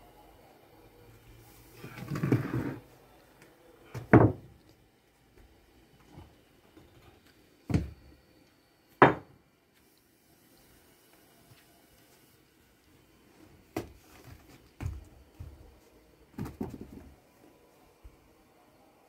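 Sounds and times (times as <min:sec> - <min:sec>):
stones scraping on stone floor: 0:01.8 - 0:02.9.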